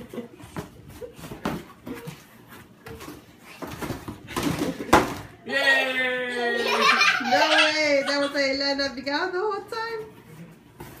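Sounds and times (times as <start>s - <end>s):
bare feet thudding on tile floor: 0.0s - 5.4s.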